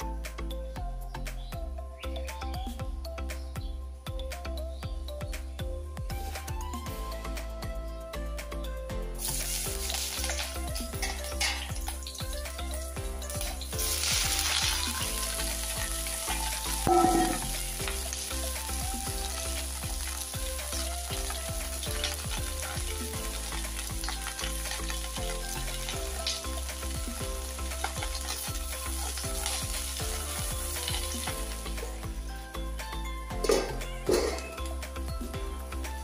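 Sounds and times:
okra sizzling in hot oil: 9.2 - 36.0.

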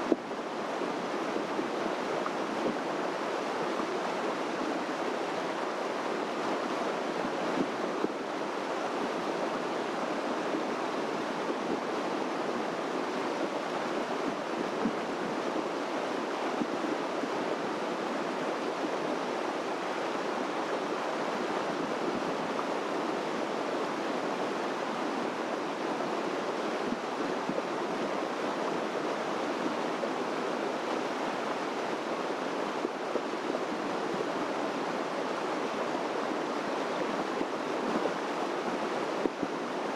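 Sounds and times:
stream water rushing: 0.0 - 39.9.

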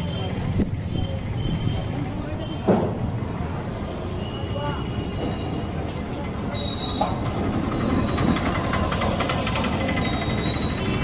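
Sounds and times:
vehicle engine running: 7.1 - 11.0.

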